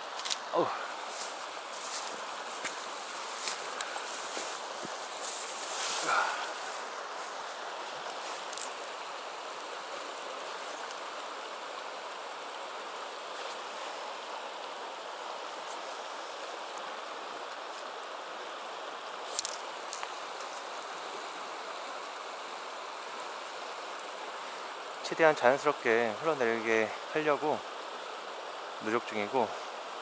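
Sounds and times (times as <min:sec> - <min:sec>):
river rushing over stones: 0:00.0 - 0:30.0.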